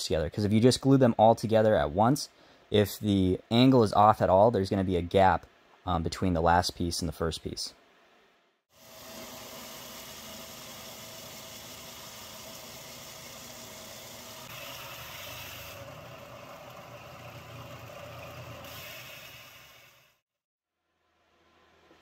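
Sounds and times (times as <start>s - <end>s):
belt sander running: 8.8s - 20.0s.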